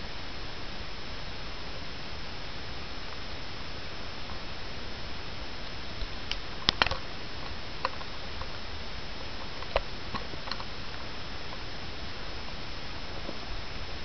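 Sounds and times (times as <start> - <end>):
faint high steady tone: 0.0 - 14.0
microphone hiss: 0.0 - 14.0.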